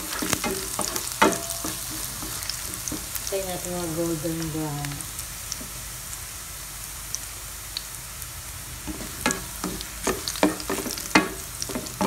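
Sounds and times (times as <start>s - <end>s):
spatula scraping a pan: 0.0s - 3.3s, 8.9s - 12.0s
garlic and onion sizzling in oil: 0.0s - 12.0s.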